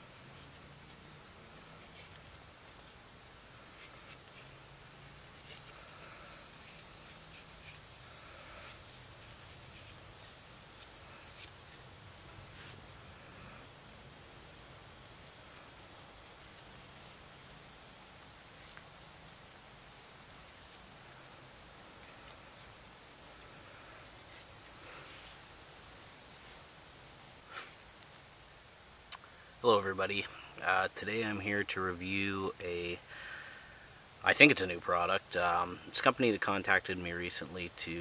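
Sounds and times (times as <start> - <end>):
knife shaving wood: 0.0 - 12.9
insects chirring: 0.0 - 38.0.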